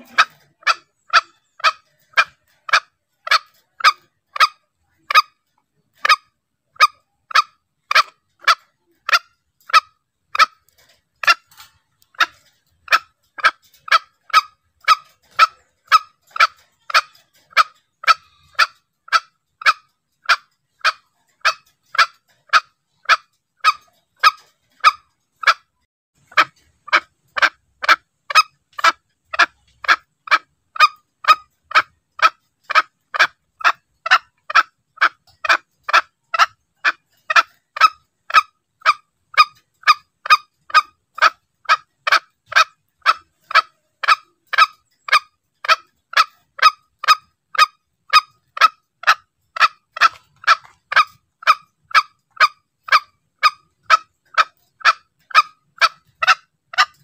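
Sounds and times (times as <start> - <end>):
junglefowl calls: 0.0 - 57.0.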